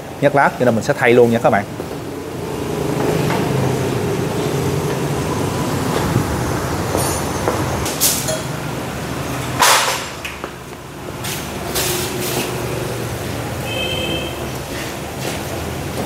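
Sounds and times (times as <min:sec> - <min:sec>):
low engine hum: 0:01.7 - 0:07.9.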